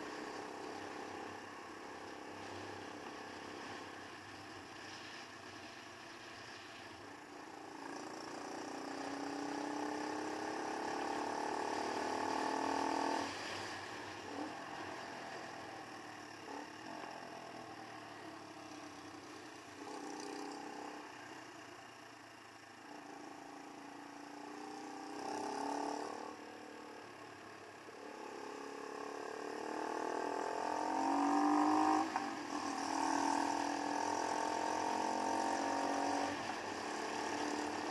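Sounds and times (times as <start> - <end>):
wind and road noise: 0.0 - 37.9
motorcycle engine revving: 7.6 - 13.5, 14.2 - 21.4, 22.9 - 27.0, 27.9 - 37.9.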